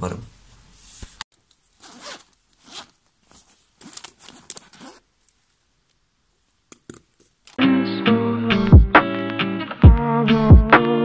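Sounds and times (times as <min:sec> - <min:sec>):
fabric case rustling: 0:01.6 - 0:05.6
zipper being pulled open: 0:01.8 - 0:05.1
guitar music: 0:07.6 - 0:11.0.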